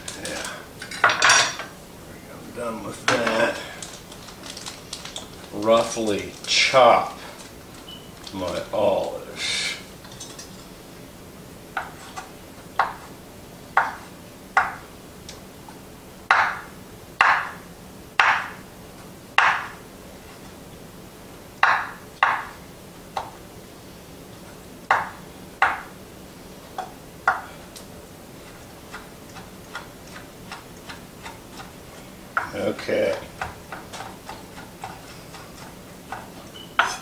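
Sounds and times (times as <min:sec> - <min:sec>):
knife chopping on cutting board: 0:16.3 - 0:17.6, 0:18.2 - 0:18.6, 0:19.4 - 0:19.8, 0:21.6 - 0:22.6, 0:24.9 - 0:25.9, 0:32.4 - 0:37.0.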